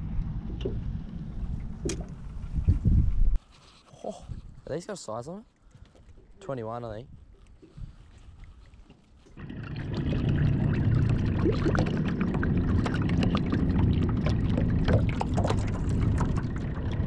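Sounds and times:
water pouring and splashing: 7.4 - 17.0.

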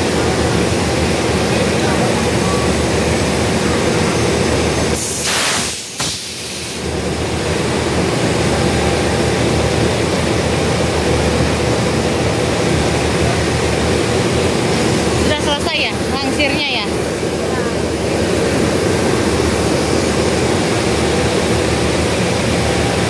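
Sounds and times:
diesel locomotive idling: 0.0 - 23.0
brief hiss: 5.0 - 6.8.

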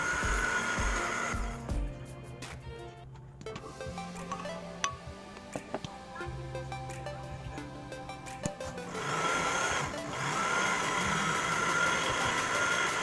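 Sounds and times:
electric blender whining: 0.0 - 1.8, 8.2 - 13.0
background music: 0.0 - 13.0.

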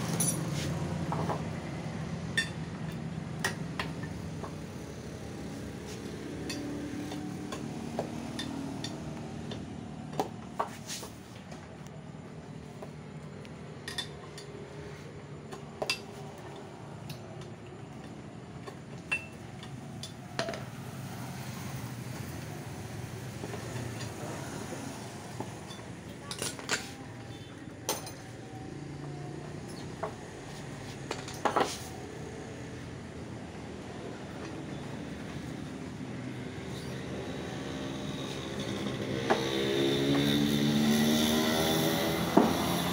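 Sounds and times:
metal tools clinking: 0.0 - 0.7.

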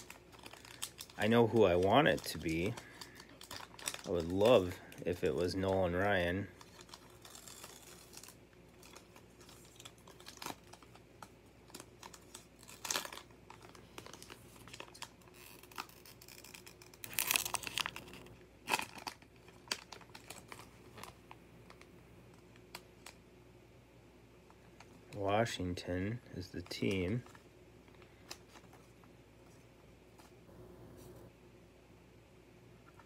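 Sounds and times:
wrapper tearing and crinkling: 0.0 - 23.2.

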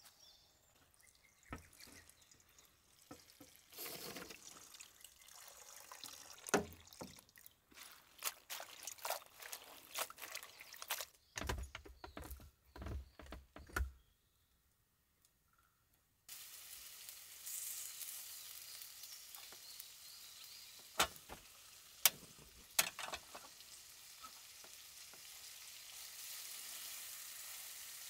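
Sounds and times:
liquid pouring and dripping: 1.0 - 11.2
small sharp clicks and knocks: 22.0 - 23.6.

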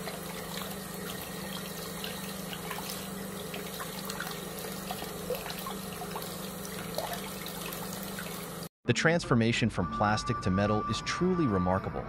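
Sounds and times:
steady low hum: 0.0 - 8.7
tap water running into sink: 0.0 - 8.7
water drips ticking: 0.0 - 8.7.

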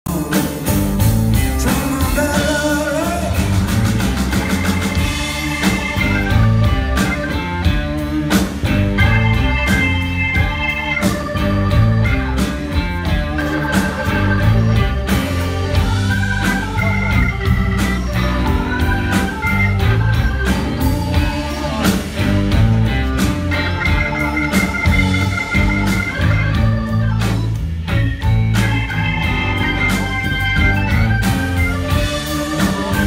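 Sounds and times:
person singing: 0.1 - 4.0, 20.6 - 27.4, 31.9 - 33.0
live blues-rock band playing: 0.1 - 33.0.

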